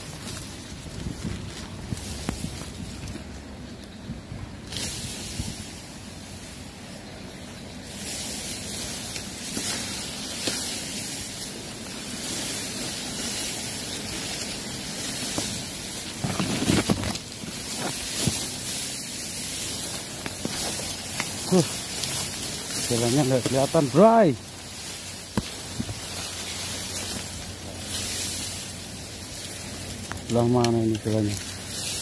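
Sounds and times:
grass rustling and swishing: 0.0 - 32.0.

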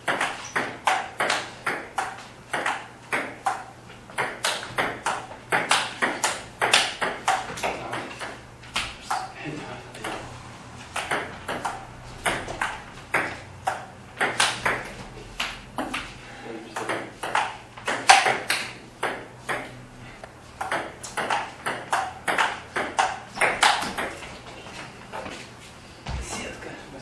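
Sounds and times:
table tennis ball clicking: 0.1 - 9.3, 11.0 - 16.0, 16.8 - 19.7, 20.6 - 24.2.

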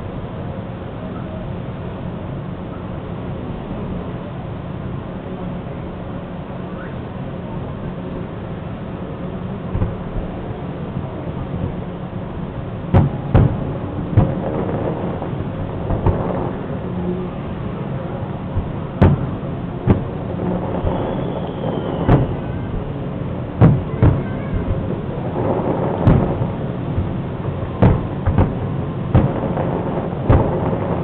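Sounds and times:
steady background noise: 0.0 - 31.0
firework shells booming: 12.9 - 31.0.

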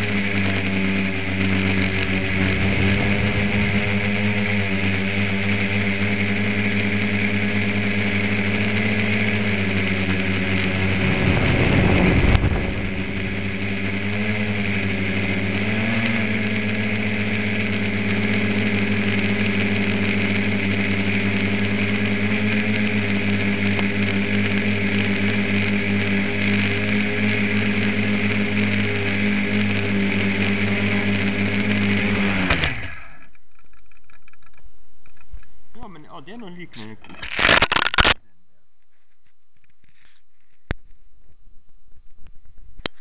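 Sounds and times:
drone motors and propellers humming: 0.0 - 35.5
rush of air: 2.0 - 4.8, 10.4 - 14.8.

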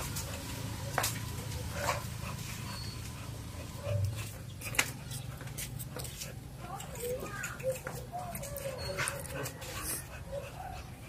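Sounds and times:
faint dog sounds: 6.1 - 11.0.

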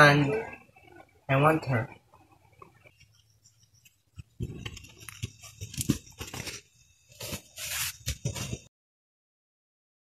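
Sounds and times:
rustling and crackling: 2.5 - 8.7.

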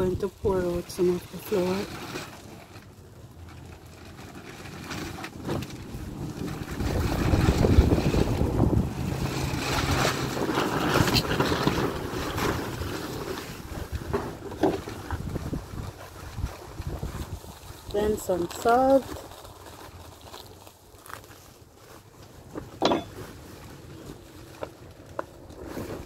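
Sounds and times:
plastic bag rustling: 0.0 - 26.0
wind buffeting microphone: 5.6 - 12.1, 13.6 - 18.0.

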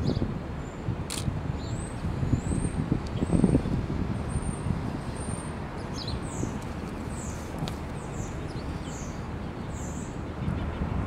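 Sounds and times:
bird chirping: 4.3 - 10.9.

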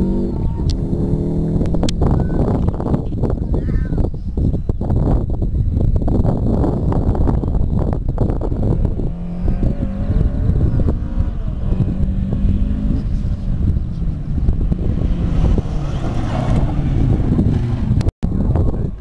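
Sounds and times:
wind buffeting microphone: 0.0 - 19.0
rally car engine passing: 8.2 - 18.0.

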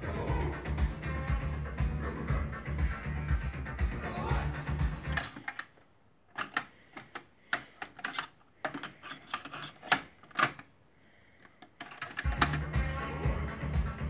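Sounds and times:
music: 0.0 - 5.3, 12.2 - 14.0.

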